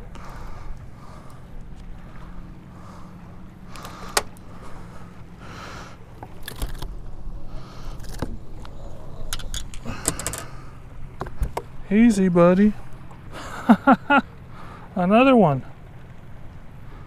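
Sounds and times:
fishing reel and line handling: 0:03.7 - 0:04.5, 0:07.8 - 0:11.7.

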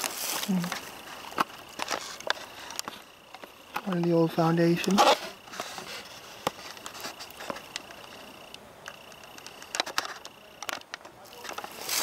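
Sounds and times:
footsteps through dry leaves: 0:00.0 - 0:02.8, 0:11.6 - 0:12.0.

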